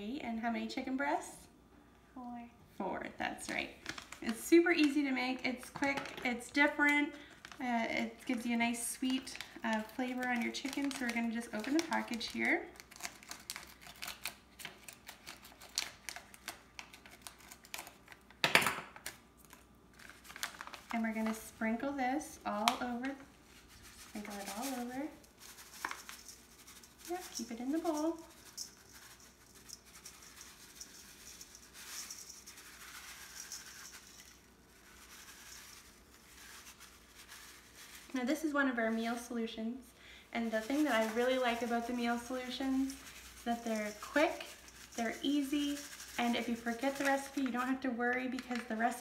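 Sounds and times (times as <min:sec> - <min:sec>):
plastic pouch rustling: 0:03.8 - 0:05.0, 0:05.6 - 0:18.3, 0:19.4 - 0:21.8, 0:22.5 - 0:38.5, 0:40.4 - 0:48.8
seasoning pattering into metal bowl: 0:08.2 - 0:12.6, 0:23.6 - 0:39.5, 0:40.4 - 0:48.9.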